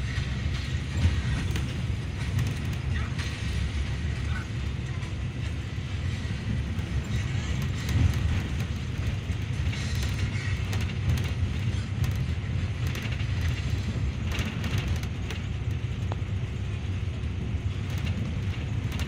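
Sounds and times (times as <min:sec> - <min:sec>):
bus engine and road rumble: 0:00.0 - 0:19.0
cabin fittings rattling: 0:06.6 - 0:16.4.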